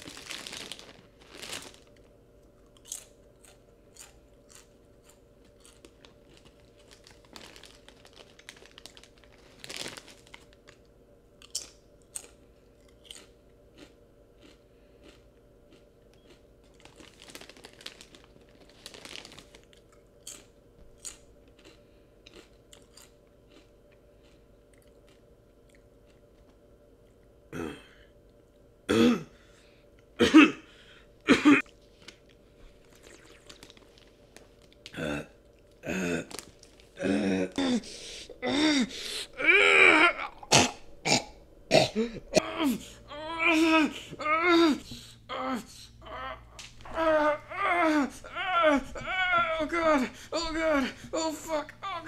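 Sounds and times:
plastic bag crinkling: 0.0 - 2.1, 5.4 - 10.8, 16.6 - 20.0, 32.0 - 34.9, 35.6 - 37.8
chips crunching while chewing: 0.0 - 26.6, 31.6 - 37.7.

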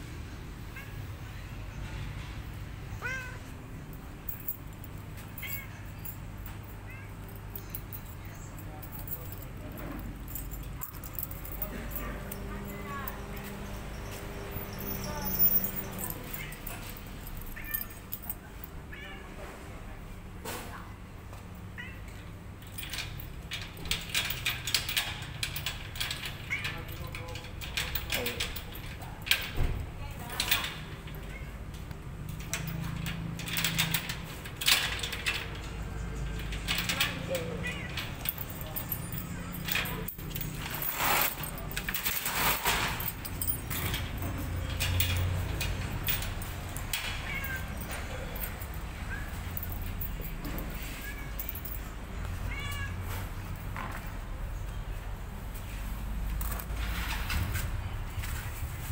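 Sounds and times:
cat mewing: 2.9 - 3.5, 47.1 - 47.8, 52.4 - 53.0
metallic clicking and clattering: 22.6 - 51.9.

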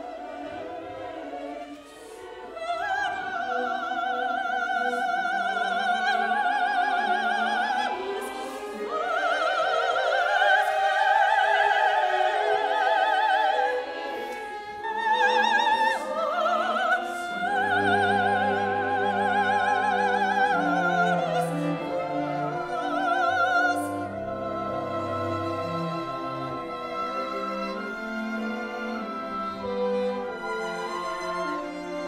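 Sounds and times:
operatic soprano singing: 0.0 - 32.0
orchestral strings: 0.0 - 32.0.

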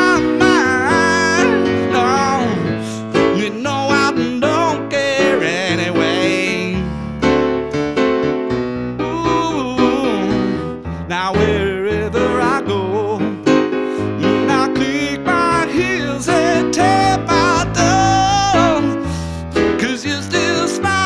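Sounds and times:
blues piano: 0.0 - 21.0.

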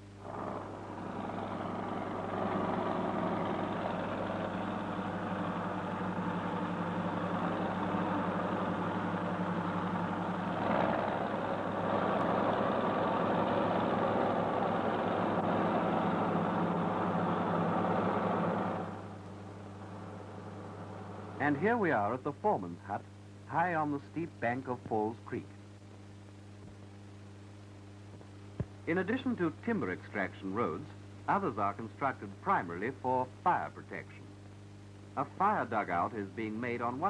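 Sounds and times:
bulldozer engine running: 0.0 - 21.7.

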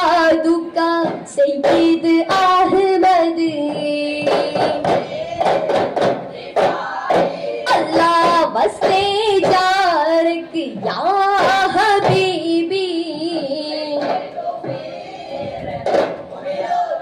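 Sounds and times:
voices singing devotional song: 0.0 - 17.0
frame drums struck by hand: 1.0 - 10.0.

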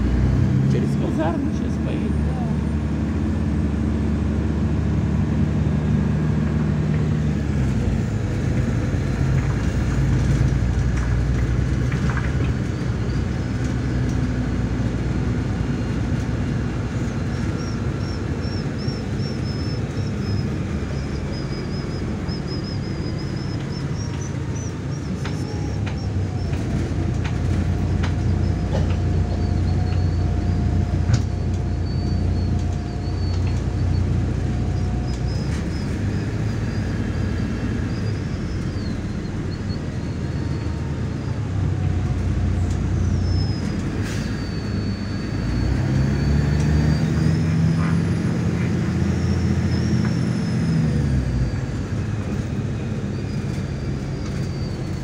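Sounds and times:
bus engine hum: 0.0 - 55.0
road noise: 0.0 - 55.0.

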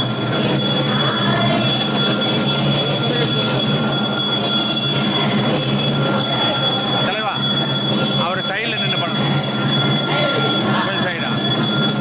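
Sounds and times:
high-pitched ringing tones: 0.0 - 12.0
street crowd din: 0.0 - 12.0.

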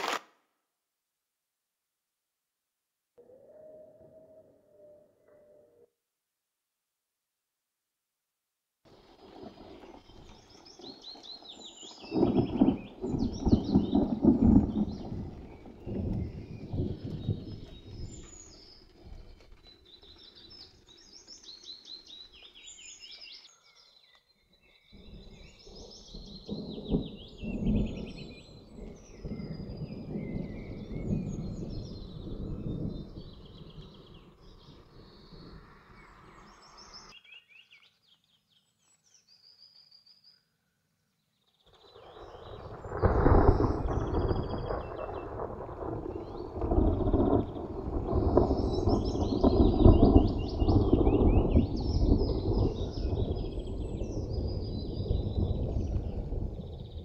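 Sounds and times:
distant thunder rumbling: 9.0 - 20.5, 25.0 - 36.8, 41.9 - 57.0
songbirds singing: 9.0 - 57.0.

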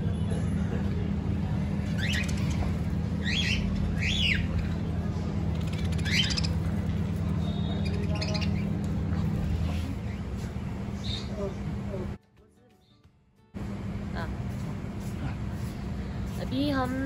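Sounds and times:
steady low hum: 0.0 - 12.2, 13.6 - 17.0
small birds chirping: 1.8 - 11.9.

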